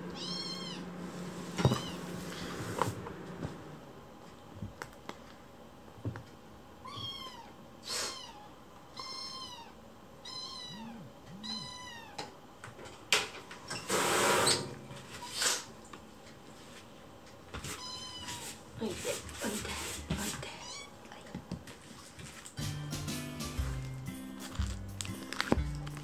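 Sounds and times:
kitten meowing: 0:00.2 - 0:00.8, 0:06.8 - 0:12.2.

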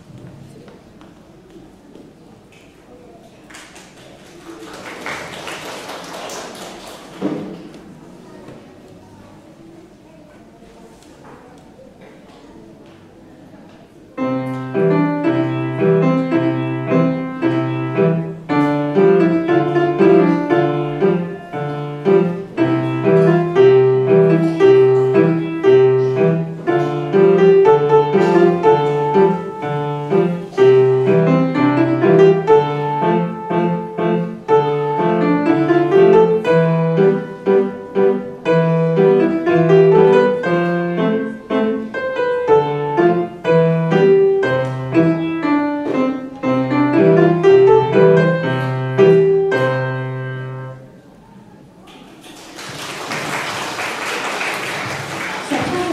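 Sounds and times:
audience applause: 0:03.4 - 0:07.7, 0:52.0 - 0:55.9
grand piano piece: 0:14.0 - 0:55.9.

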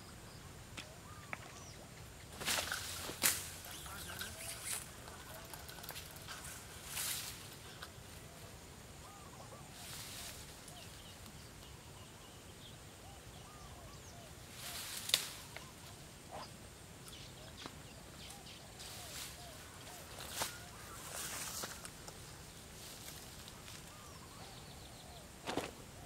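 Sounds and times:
marsh animals calling: 0:03.0 - 0:06.9.

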